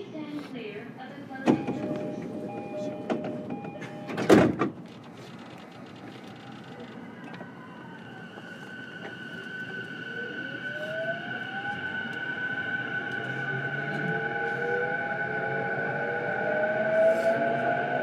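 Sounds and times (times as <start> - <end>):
train whine rising in pitch: 6.4 - 18.0.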